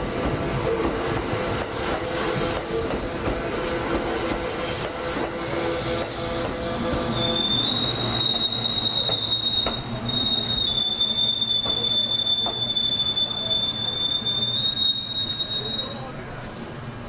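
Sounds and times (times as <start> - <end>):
train wheels squealing: 6.1 - 16.1.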